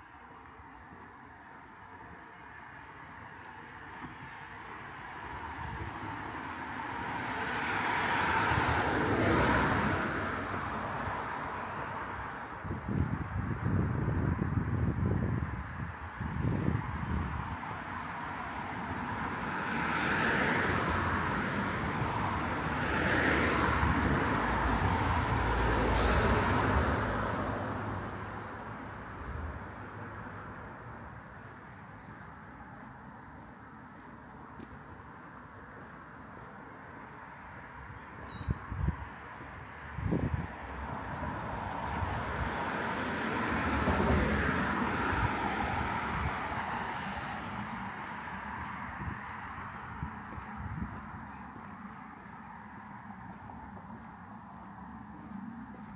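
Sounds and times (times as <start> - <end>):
cars passing: 0.0 - 55.9
distant road traffic hiss: 17.0 - 55.9.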